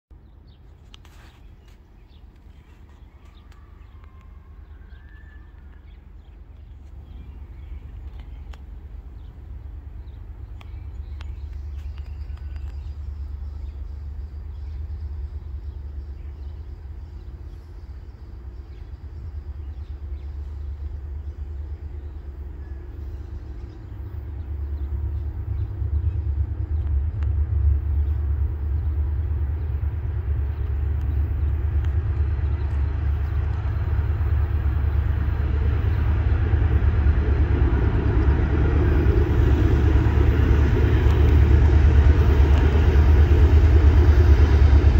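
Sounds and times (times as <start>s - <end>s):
diesel locomotive low rumble: 0.1s - 44.9s.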